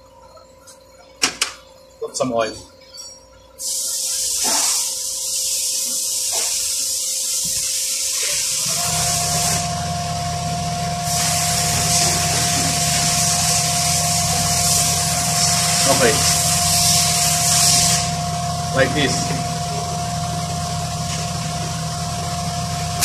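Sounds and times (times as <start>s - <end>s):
motor humming and whining: 0.0s - 23.0s
steady hiss: 3.6s - 23.0s.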